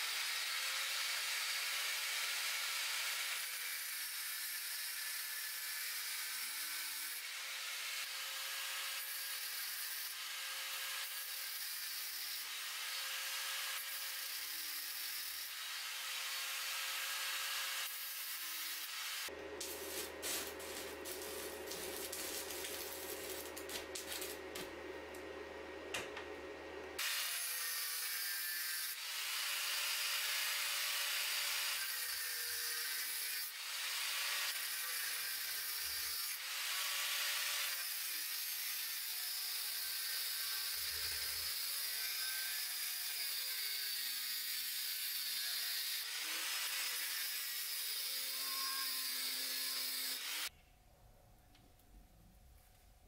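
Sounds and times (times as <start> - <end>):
angle grinder grinding steel: 3.3 - 24.7, 37.9 - 50.5.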